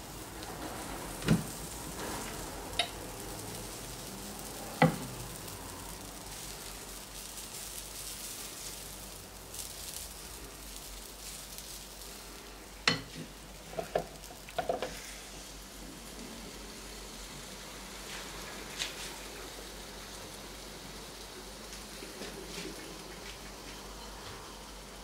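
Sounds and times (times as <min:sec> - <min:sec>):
batter sizzling on waffle iron: 0:00.0 - 0:25.0
spatula tapping: 0:12.9 - 0:13.2.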